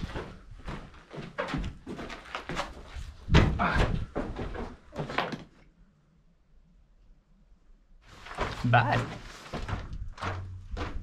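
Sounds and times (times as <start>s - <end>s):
footsteps on rocky floor: 0.0s - 5.3s, 8.1s - 11.0s.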